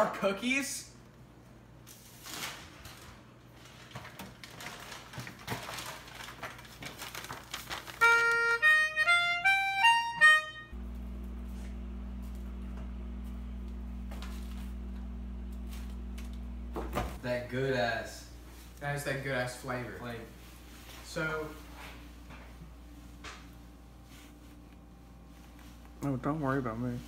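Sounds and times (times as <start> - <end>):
steady low hum: 10.7 - 27.0.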